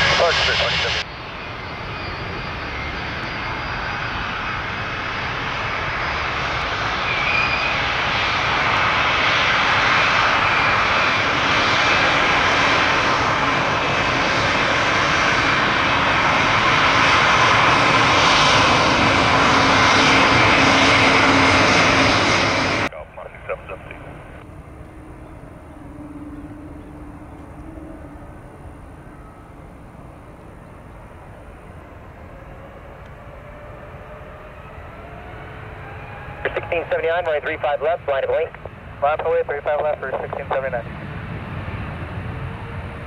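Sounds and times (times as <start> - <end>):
jet engines running: 0.0 - 43.0
faint high whine: 22.9 - 32.8.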